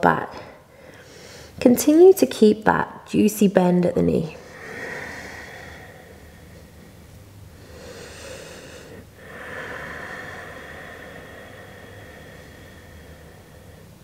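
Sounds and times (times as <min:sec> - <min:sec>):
slow breathing through throat: 0:04.4 - 0:14.0.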